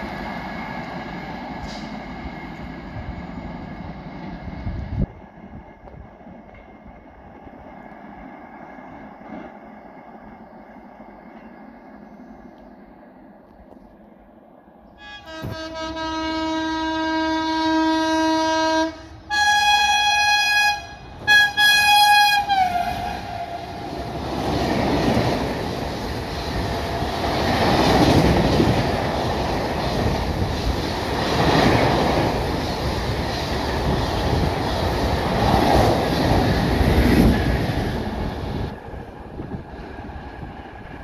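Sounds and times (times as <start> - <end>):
train wheels on rails: 0.0 - 14.4, 18.8 - 41.0
locomotive horn blasts: 15.0 - 23.7.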